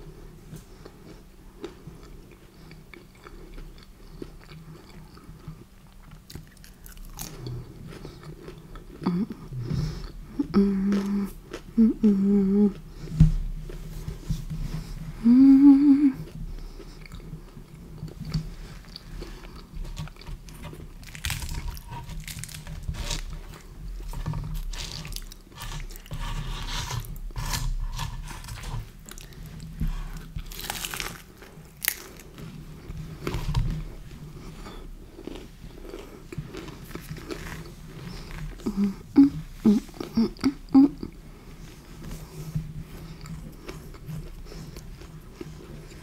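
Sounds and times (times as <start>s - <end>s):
chewing and biting pizza: 0.2s - 13.1s, 16.2s - 39.0s
person humming: 9.0s - 9.6s, 10.4s - 12.9s, 15.2s - 16.4s, 38.6s - 41.2s.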